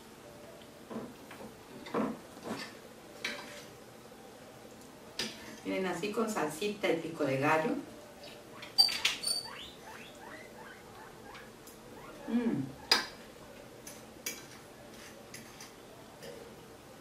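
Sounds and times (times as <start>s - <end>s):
person humming mm: 12.2s - 12.8s.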